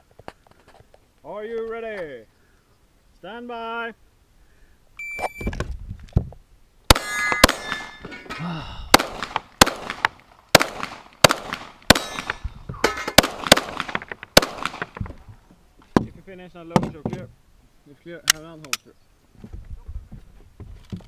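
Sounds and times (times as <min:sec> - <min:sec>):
shot timer beep: 0:05.0 - 0:05.5
pistol shots: 0:06.9 - 0:08.0, 0:08.9 - 0:12.4, 0:13.1 - 0:14.9
bullets clanging on steel targets: 0:06.9 - 0:08.6, 0:11.9 - 0:13.2.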